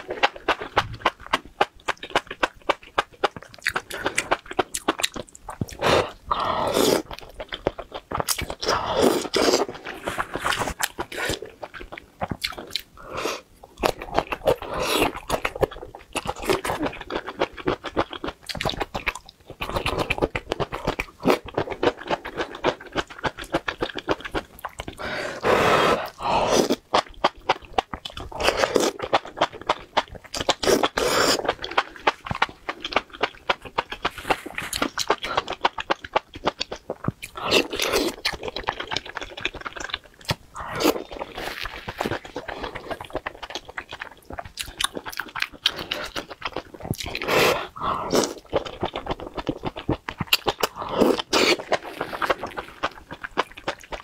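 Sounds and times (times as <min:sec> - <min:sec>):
person chewing and biting food: 0:00.0 - 0:54.0
slurping noodles: 0:25.0 - 0:26.8, 0:47.1 - 0:48.7, 0:50.6 - 0:52.9.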